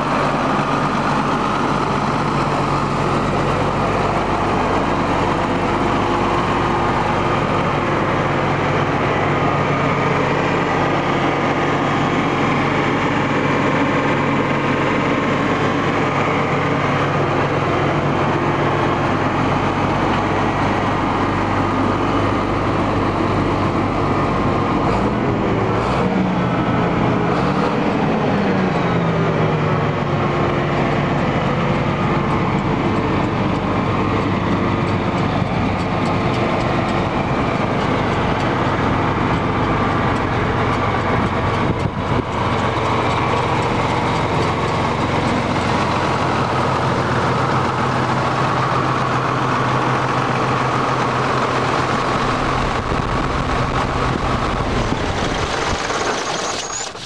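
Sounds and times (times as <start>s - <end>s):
tractor diesel engine idling: 0.0s - 57.0s.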